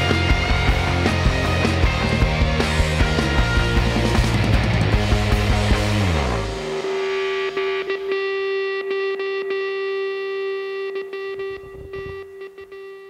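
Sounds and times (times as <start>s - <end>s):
distorted electric guitar note: 0.0s - 13.0s.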